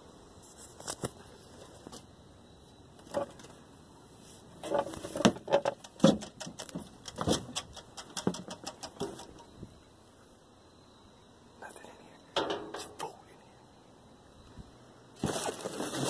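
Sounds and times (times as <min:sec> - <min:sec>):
rummaging through rubbish: 0:15.2 - 0:16.0.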